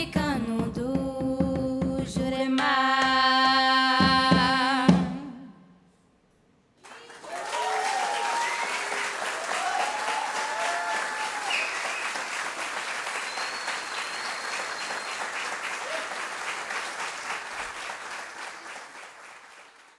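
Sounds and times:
audience applauding: 6.8s - 19.9s.

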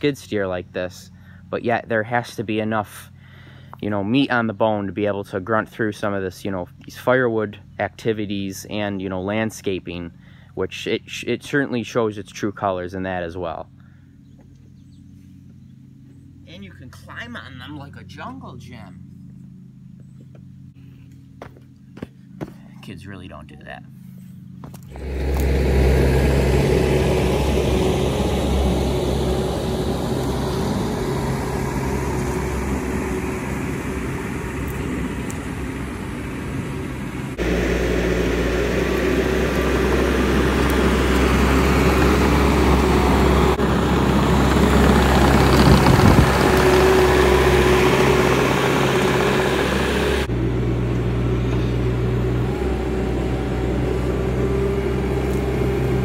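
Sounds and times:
diesel engine running: 0.0s - 56.0s
steady tone: 24.9s - 50.5s.

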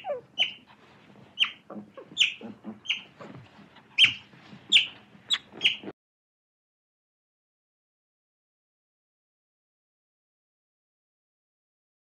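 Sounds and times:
otter squeaking chirps: 0.0s - 5.9s.

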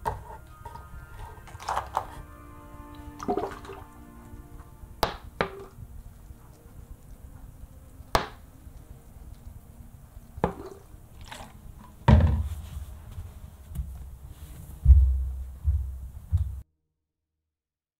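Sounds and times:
plastic bottle knocks and thumps: 12.1s - 12.6s.

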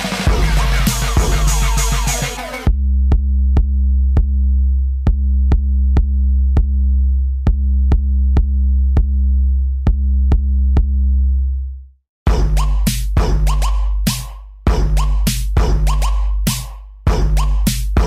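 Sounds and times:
held deep bass note: 2.7s - 11.6s.

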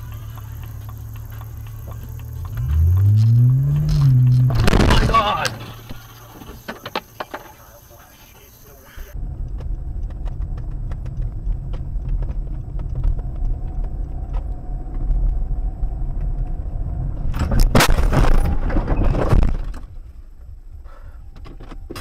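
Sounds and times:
road and engine rumble: 0.0s - 22.0s
car crash crunching and rattling: 2.6s - 7.7s, 17.2s - 20.3s.

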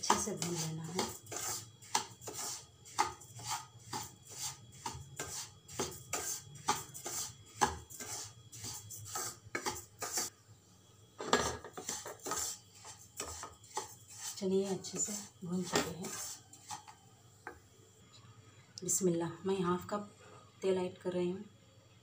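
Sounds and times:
spatula scraping a pan: 0.0s - 10.3s, 11.2s - 17.0s.

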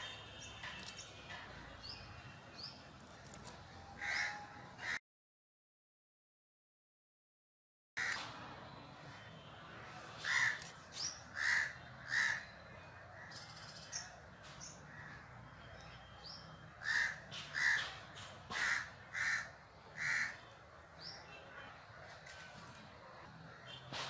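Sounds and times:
crow cawing: 4.0s - 5.0s, 8.0s - 8.2s, 10.2s - 10.6s, 11.3s - 12.5s, 16.8s - 17.9s, 18.5s - 20.5s.

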